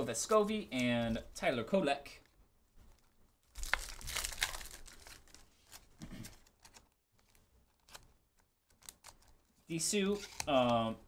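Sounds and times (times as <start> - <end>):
foil wrapper tearing and crinkling: 3.5 - 5.9.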